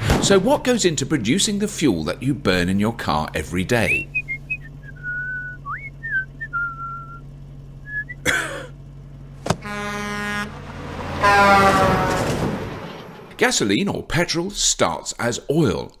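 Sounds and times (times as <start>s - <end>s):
person whistling: 4.1s - 7.2s, 7.8s - 8.2s
truck horn blasts: 9.4s - 13.3s.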